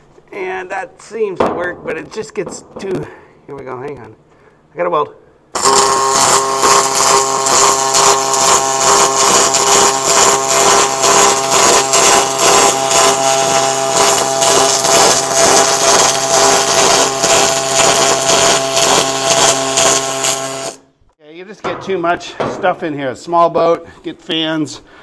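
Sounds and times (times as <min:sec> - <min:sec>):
welding arc hissing and crackling: 0:05.6 - 0:20.9.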